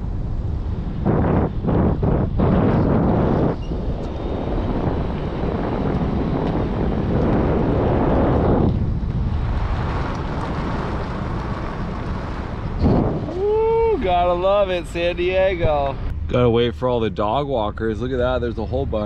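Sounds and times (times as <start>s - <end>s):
low vehicle and tyre rumble: 0.0s - 19.0s
wind buffeting microphone: 0.0s - 19.0s.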